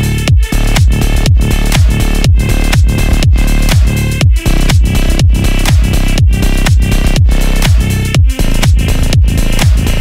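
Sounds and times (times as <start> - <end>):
electronic dance music: 0.0 - 10.0
kick drum: 0.0 - 10.0.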